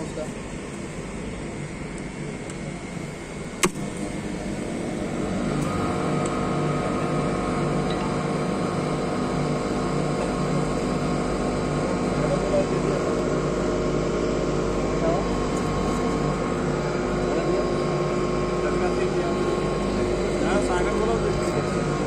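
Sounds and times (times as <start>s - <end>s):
compressor running: 0.0s - 22.0s
refrigeration unit humming: 0.0s - 22.0s
contactor click: 3.6s - 4.1s.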